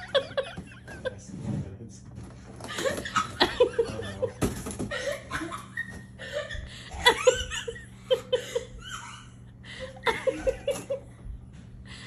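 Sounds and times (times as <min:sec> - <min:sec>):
person chuckling: 0:06.2 - 0:11.2.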